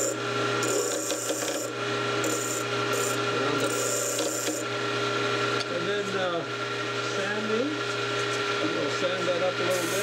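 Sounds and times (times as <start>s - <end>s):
file rasping on spinning wood: 0.0s - 4.7s
wood lathe humming: 0.0s - 10.0s.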